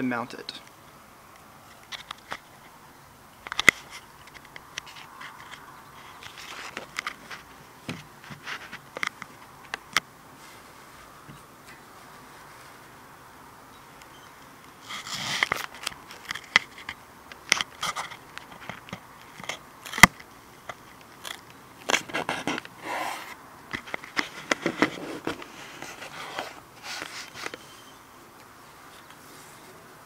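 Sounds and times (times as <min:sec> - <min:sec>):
handling clicks and scrapes: 0:03.4 - 0:12.8, 0:14.0 - 0:28.0.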